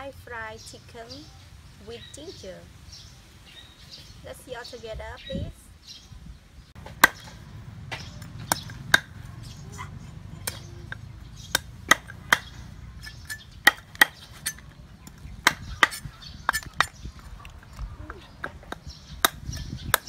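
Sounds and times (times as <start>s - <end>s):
cleaver chopping on wooden board: 6.8s - 9.3s, 10.4s - 17.1s, 18.4s - 20.0s.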